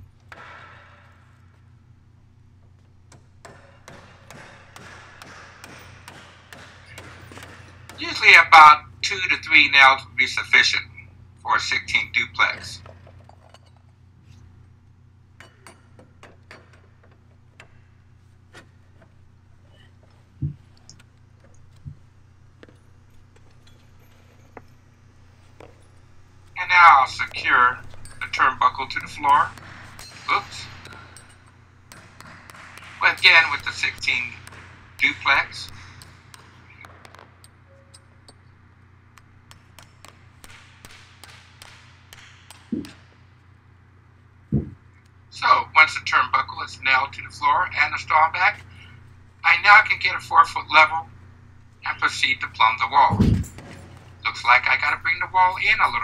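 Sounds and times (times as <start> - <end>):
low hum: 0.0 - 56.0
hammer tapping nails: 2.7 - 8.3, 27.2 - 38.5, 39.1 - 43.2
dull thumps: 39.5 - 43.2, 44.5 - 44.9, 53.0 - 54.3
heavy hammer thud: 53.0 - 54.1.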